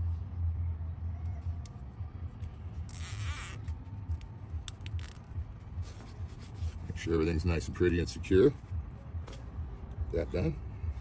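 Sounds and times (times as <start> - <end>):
zip tie zipping rattle: 2.9 - 3.8.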